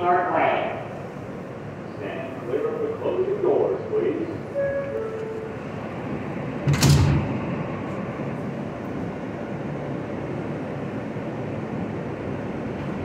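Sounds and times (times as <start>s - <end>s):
subway car running noise: 0.0s - 13.0s
subway doors shutting thump: 4.3s - 13.0s.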